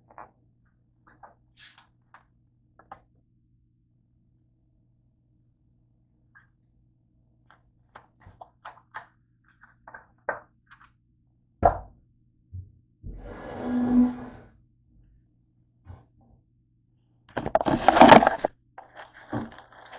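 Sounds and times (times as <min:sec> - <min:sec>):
plastic bottle rustling and scraping: 0:17.3 - 0:19.9.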